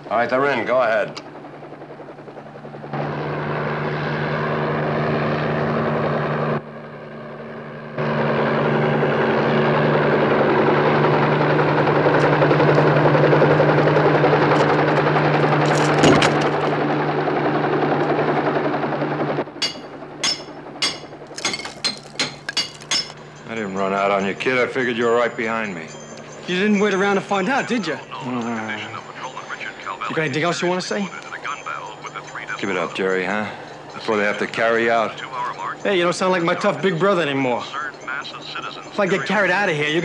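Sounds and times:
helicopter engine and rotor: 0.0 - 21.4, 22.3 - 40.0
steel bars chipping masonry: 19.6 - 23.2.

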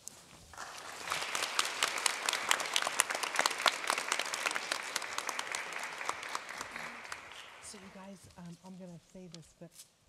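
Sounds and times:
audience applauding: 0.5 - 8.0.

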